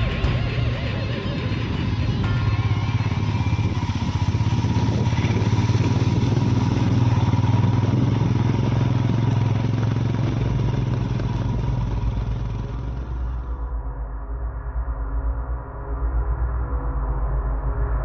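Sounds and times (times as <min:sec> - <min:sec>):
motorcycle engine droning: 0:00.0 - 0:13.9
road and wind noise: 0:00.0 - 0:18.0.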